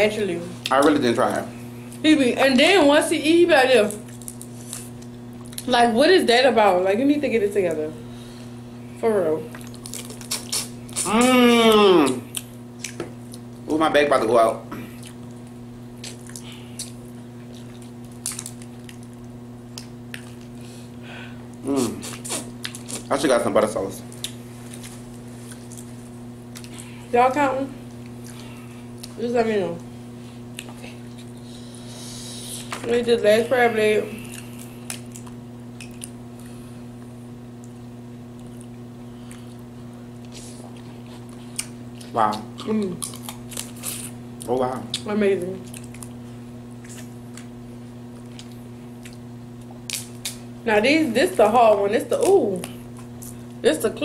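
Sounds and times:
low steady hum: 0.0 - 54.0
seafood being peeled and eaten: 9.5 - 13.7, 14.8 - 23.4, 34.1 - 50.6
shellfish being cracked: 49.8 - 50.4.

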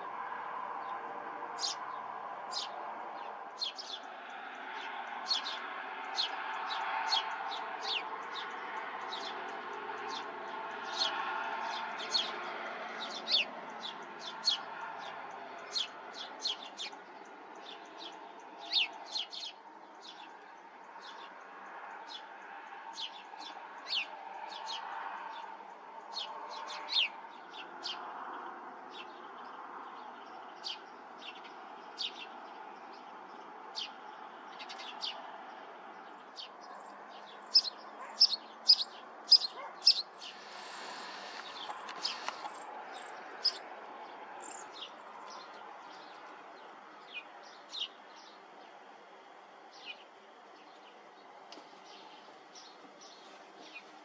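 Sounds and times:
small songbirds chirping: 0.0 - 54.0.

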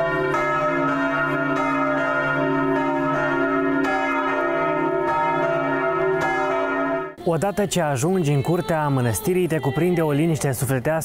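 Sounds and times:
church bells pealing: 0.0 - 7.2.

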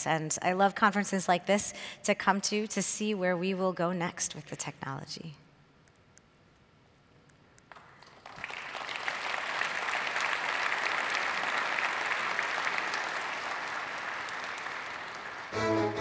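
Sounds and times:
audience applauding: 7.7 - 16.0
music: 15.5 - 16.0.

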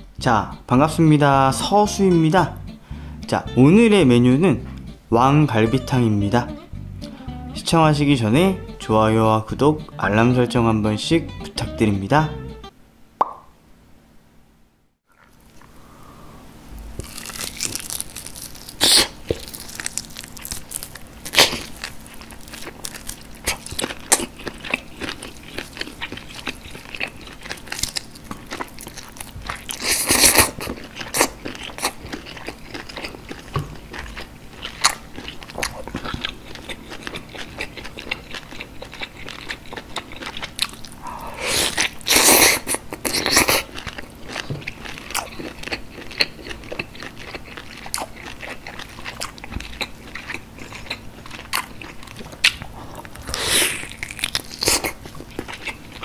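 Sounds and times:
biting and tearing meat: 16.9 - 41.0, 41.6 - 56.0
person chewing meat wetly: 17.0 - 56.0.

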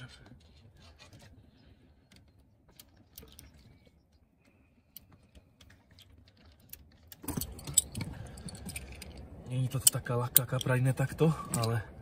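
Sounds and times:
faint small clicks and ticks: 2.0 - 10.8.

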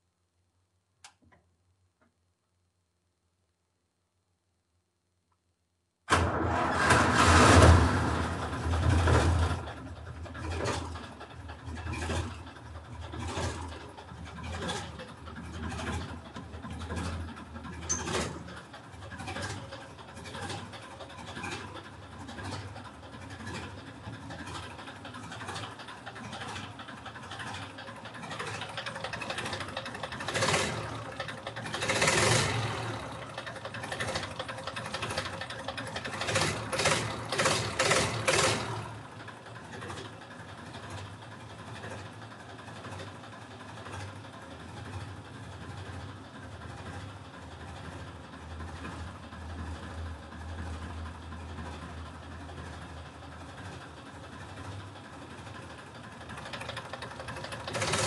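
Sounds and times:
tractor diesel engine running: 6.1 - 58.0.

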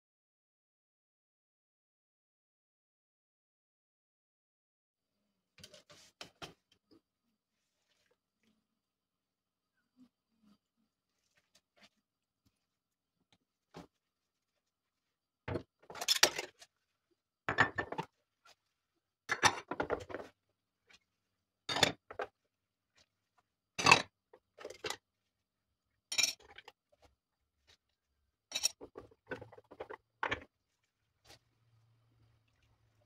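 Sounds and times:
plates and spoons clinking: 19.3 - 20.1, 26.1 - 26.5, 28.5 - 30.4.

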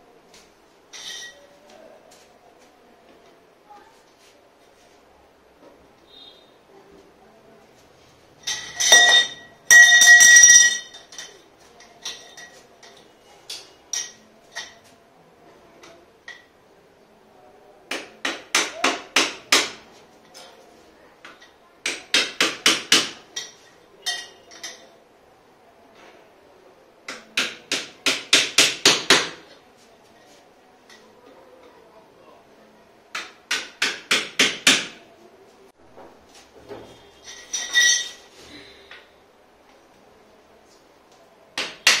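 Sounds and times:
metal tubes clanking: 8.4 - 11.4, 37.2 - 38.3
ringing clinks: 8.4 - 11.4, 37.2 - 38.2.

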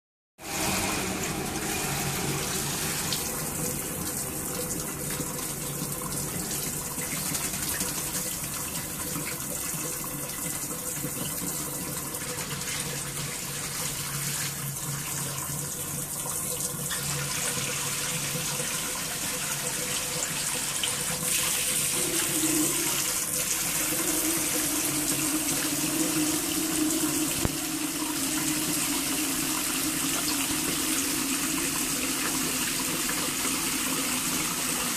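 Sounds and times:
water running in hissing stream: 0.4 - 34.9.

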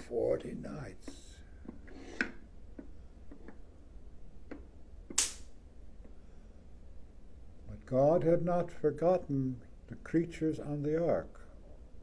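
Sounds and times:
short sharp hiss: 5.2 - 5.6.

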